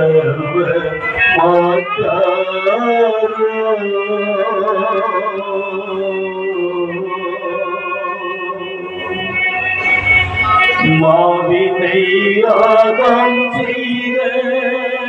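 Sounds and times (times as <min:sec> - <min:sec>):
amplified singing voice: 0:00.0 - 0:15.0
steady low tone: 0:06.4 - 0:13.6.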